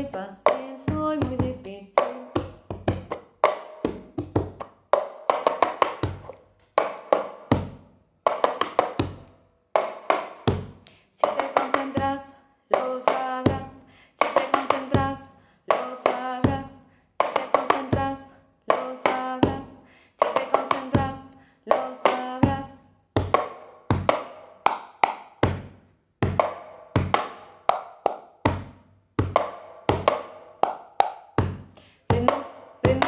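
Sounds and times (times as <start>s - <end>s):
woman singing: 0.0s - 2.5s, 11.2s - 22.8s, 32.0s - 33.0s
hand claps: 24.7s - 25.7s, 26.4s - 28.6s, 29.2s - 31.9s.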